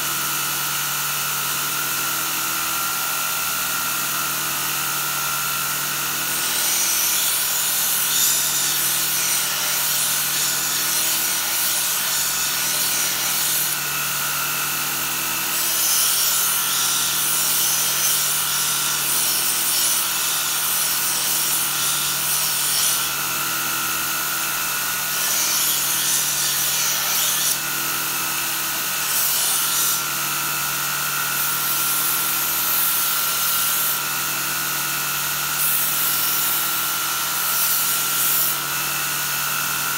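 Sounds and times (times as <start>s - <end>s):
belt grinder humming: 4.6s - 34.1s.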